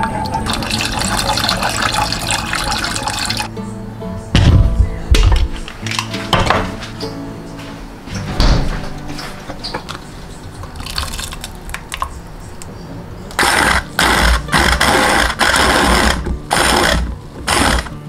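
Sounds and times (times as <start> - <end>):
stick blender whirring: 13.4 - 18.0.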